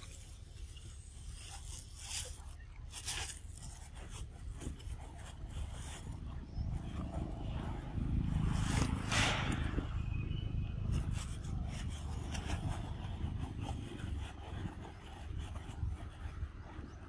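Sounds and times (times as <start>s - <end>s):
low rumble: 4.4s - 16.4s.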